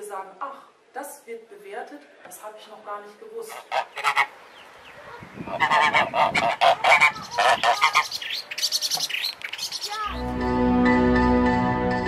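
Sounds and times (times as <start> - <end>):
geese honking: 3.5 - 10.3.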